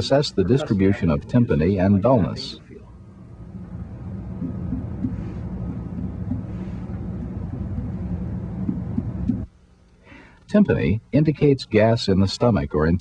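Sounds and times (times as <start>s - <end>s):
steady low rumble: 0.0s - 9.7s.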